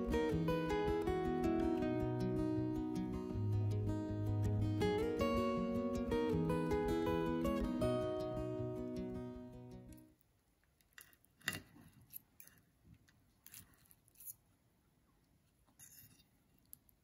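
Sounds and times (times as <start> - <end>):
guitar music: 0.0 - 10.1.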